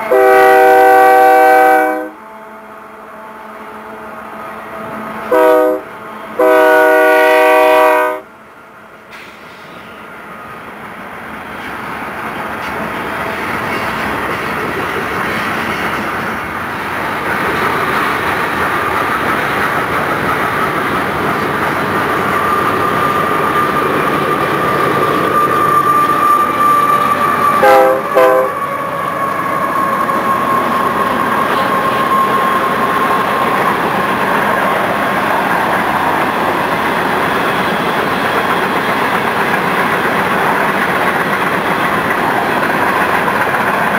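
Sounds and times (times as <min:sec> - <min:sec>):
locomotive horn blasts: 0:00.0 - 0:04.2, 0:04.8 - 0:08.3, 0:27.6 - 0:28.6
train wheels clattering over rails: 0:11.5 - 0:28.6, 0:29.3 - 0:43.9
high-pitched wheel squeal: 0:22.1 - 0:34.0.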